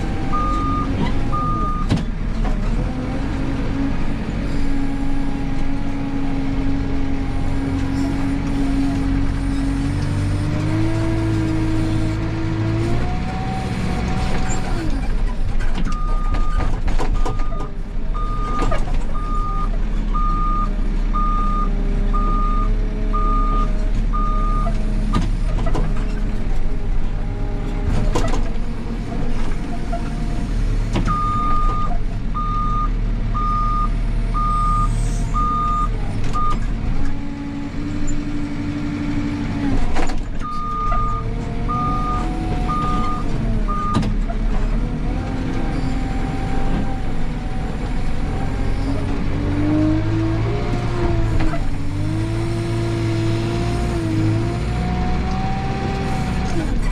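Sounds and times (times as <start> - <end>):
diesel engine running: 0.0 - 56.9
reversing alarm beeping: 0.3 - 1.9, 17.2 - 18.6, 19.2 - 24.7, 31.1 - 36.6, 40.4 - 44.0.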